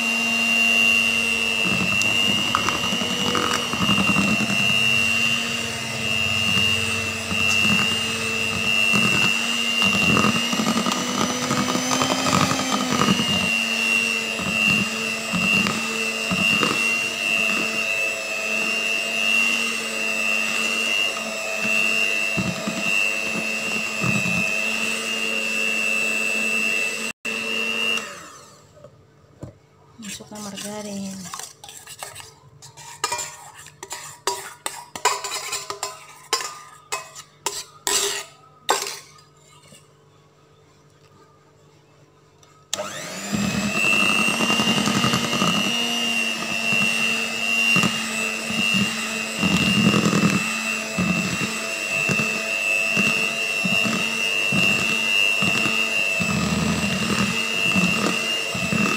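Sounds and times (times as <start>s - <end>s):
hand mixer whining: 0.0s - 28.7s, 42.7s - 58.9s.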